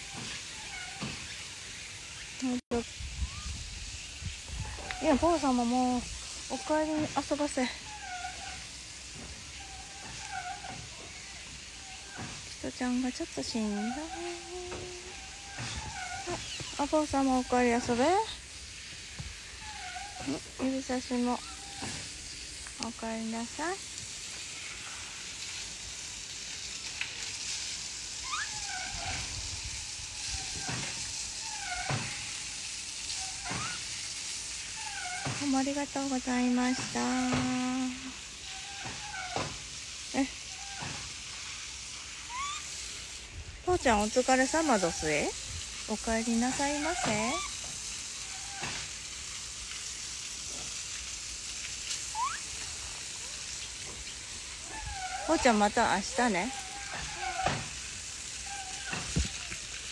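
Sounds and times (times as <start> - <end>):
steady high hiss: 0.0 - 59.9
monkey coo calls: 6.5 - 12.4, 13.6 - 18.3, 19.6 - 22.4, 28.2 - 32.4, 33.1 - 33.9, 34.8 - 35.4, 36.6 - 39.5, 40.2 - 41.0, 42.2 - 42.8, 46.2 - 47.6, 48.2 - 48.8, 52.0 - 52.8, 54.6 - 57.6, 58.4 - 59.6.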